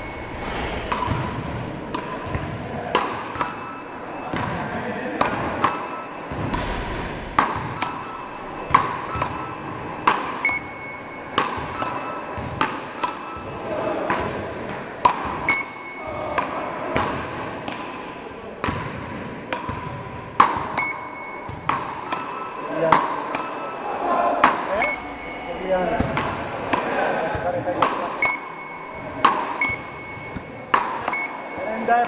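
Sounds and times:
short electronic beeps: 0.0 - 0.4, 3.3 - 4.3, 5.6 - 6.3, 7.6 - 13.6, 15.4 - 16.0, 20.8 - 23.9, 24.7 - 25.5, 28.1 - 32.0.

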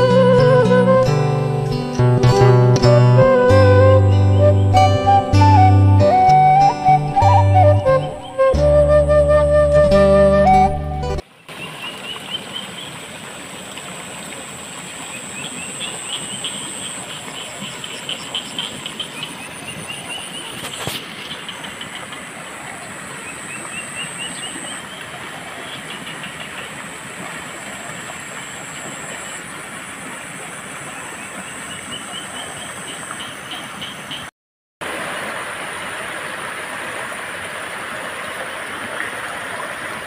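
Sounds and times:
river water rushing: 10.2 - 34.2, 34.8 - 40.0.

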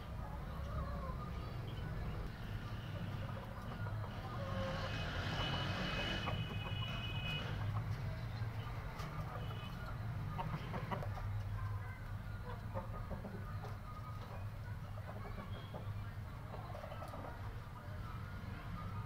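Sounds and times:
hen clucking: 8.8 - 18.0.

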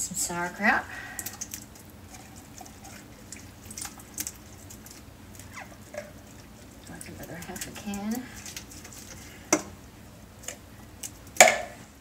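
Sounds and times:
utensil scraping inside tin can: 1.4 - 9.5.

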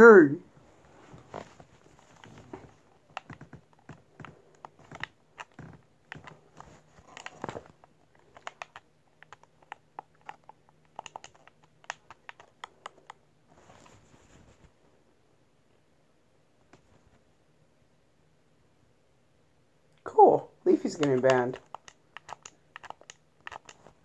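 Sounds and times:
soft rustle: 0.5 - 8.3, 13.4 - 15.1, 16.6 - 17.4
game controller buttons clicking: 2.2 - 13.2, 20.8 - 24.0.

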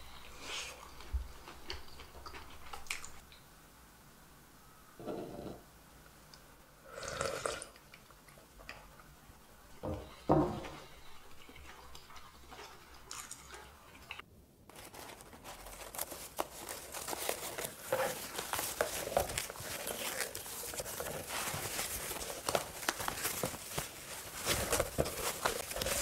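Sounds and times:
packing paper rustling and crinkling: 14.7 - 26.0.

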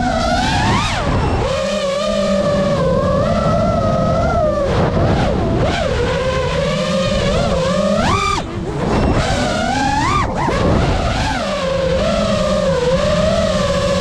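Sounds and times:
drone motors whining: 0.0 - 14.0
low rushing noise: 8.4 - 14.0.

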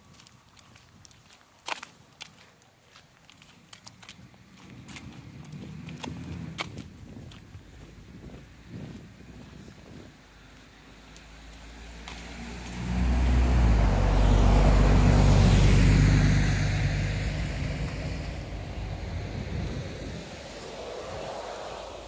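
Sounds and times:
vehicle passing close by: 4.6 - 6.8, 10.8 - 22.0.

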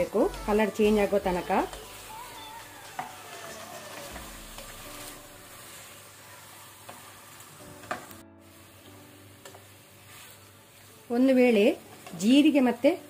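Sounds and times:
chicken sizzling in hot oil: 0.0 - 13.0
spatula stirring: 0.0 - 13.0.

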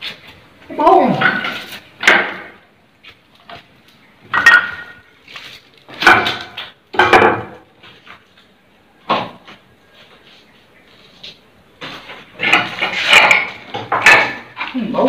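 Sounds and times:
hard objects clattering knocks: 1.1 - 2.6, 4.3 - 5.1, 5.8 - 8.2, 11.8 - 14.8.

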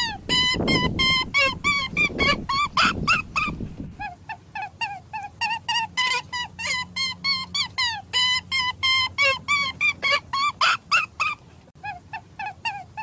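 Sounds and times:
low rumbling noise: 0.0 - 4.1
high squeaky animal calls: 0.0 - 13.0.

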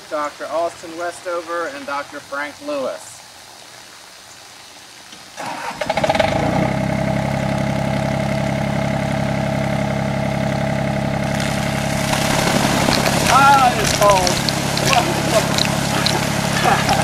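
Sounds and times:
tractor engine running: 5.9 - 17.0
water pouring from bucket: 11.2 - 17.0.

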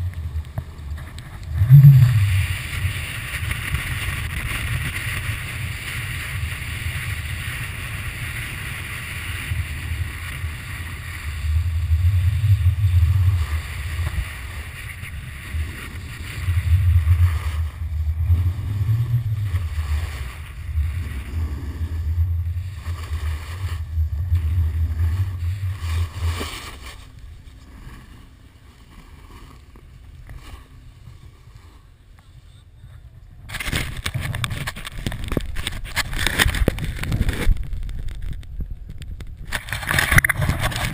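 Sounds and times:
wind buffeting microphone: 0.0 - 27.4
snowboard scraping over snow: 0.0 - 31.9
camera handling noise: 33.5 - 40.9.

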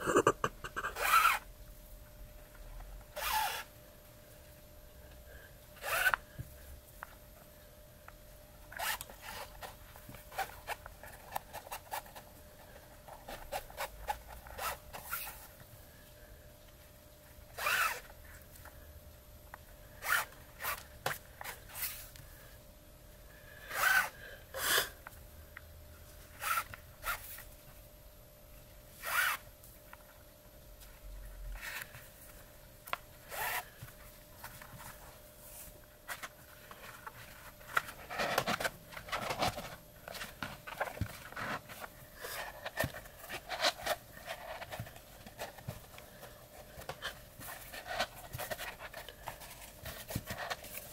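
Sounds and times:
cord zipping through leather: 29.0 - 29.4, 33.3 - 33.7.

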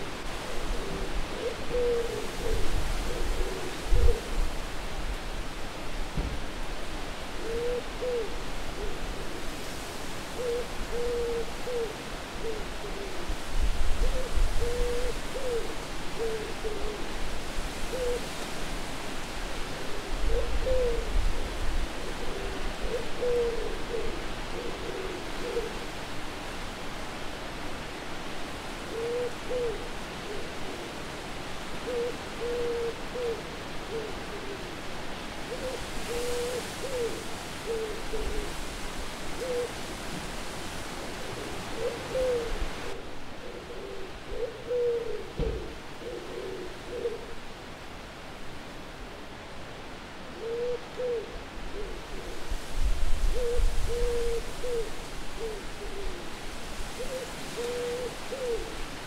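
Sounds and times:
owl hooting: 0.7 - 4.3, 7.4 - 9.4, 10.4 - 13.2, 17.9 - 18.3, 20.0 - 21.1, 22.2 - 25.8, 28.9 - 30.5, 31.8 - 34.7, 35.5 - 38.6, 39.4 - 39.7, 41.2 - 47.3, 50.4 - 52.4, 53.3 - 56.3, 56.9 - 58.8.

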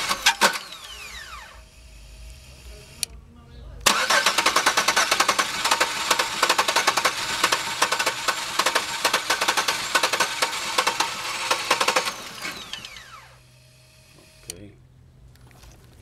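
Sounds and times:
engine cranking on starter motor: 0.0 - 1.6, 3.8 - 13.5
starter motor whine spinning down: 0.0 - 2.6, 3.9 - 14.5.

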